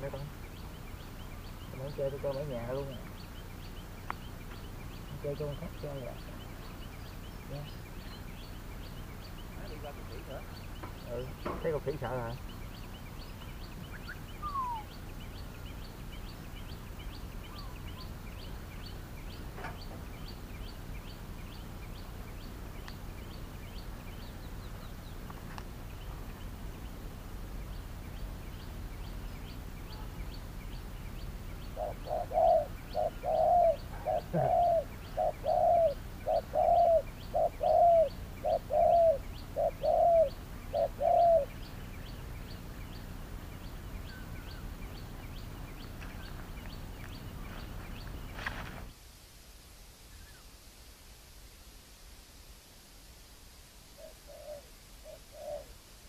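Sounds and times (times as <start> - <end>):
dove cooing: 13.9 - 15.0, 31.6 - 41.6, 54.0 - 55.8.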